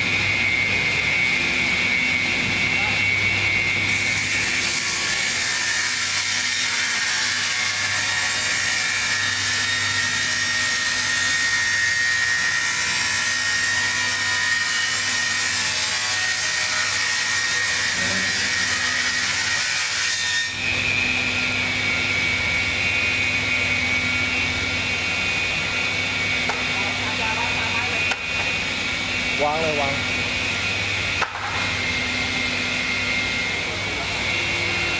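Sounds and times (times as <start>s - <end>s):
machine humming: 20.5s - 34.9s.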